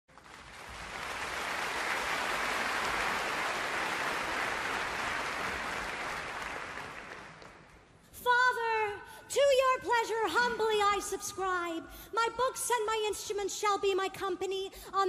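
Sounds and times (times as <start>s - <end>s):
large audience applauding: 0.1s - 7.9s.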